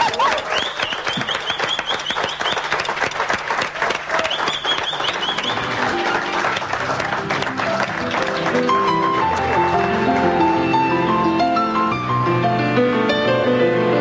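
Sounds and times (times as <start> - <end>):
audience applause: 0.0 - 11.3
soft music: 5.4 - 14.0.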